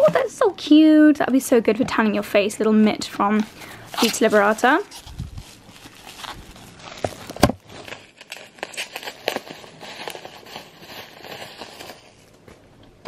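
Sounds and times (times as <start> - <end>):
bubble wrap crinkling: 3.3 - 12.5.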